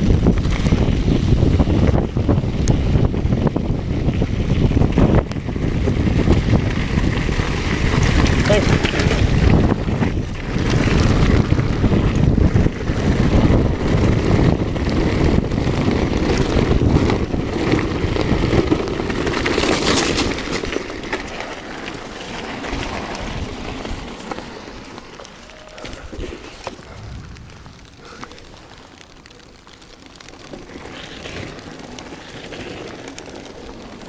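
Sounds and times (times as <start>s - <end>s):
wind on microphone: 0.0s - 18.8s, 25.6s - 29.4s
bike tyres and frame rattling: 0.0s - 34.0s.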